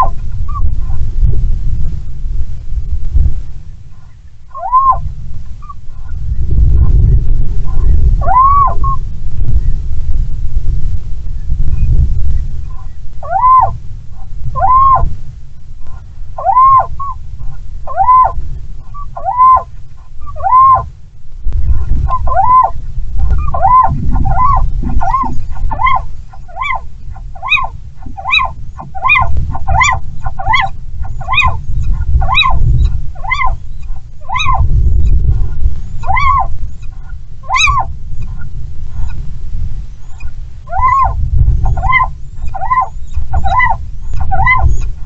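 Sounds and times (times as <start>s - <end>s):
owl calling: 0.0s - 1.0s, 3.9s - 6.2s, 7.7s - 9.0s, 12.7s - 15.1s, 15.8s - 20.9s, 21.6s - 39.2s, 40.0s - 45.0s
wind rumbling on microphone: 0.0s - 45.0s.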